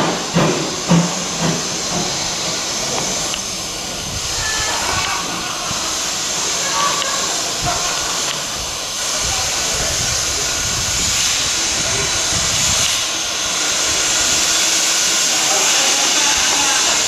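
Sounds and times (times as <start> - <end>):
steam locomotive hissing steam: 0.0 - 17.0.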